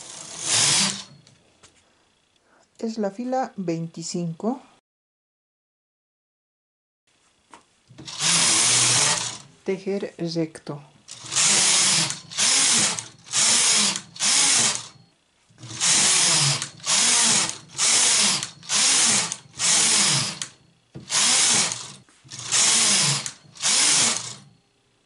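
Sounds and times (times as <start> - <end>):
knitting machine carriage strokes: 0.0 - 1.3, 8.0 - 9.5, 11.1 - 15.0, 15.6 - 24.5.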